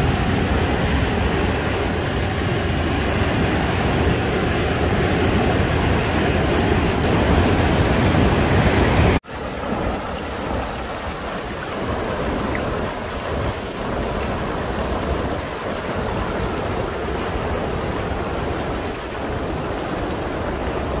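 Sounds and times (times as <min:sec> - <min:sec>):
waterfall rushing over rocks: 0:07.0 - 0:21.0.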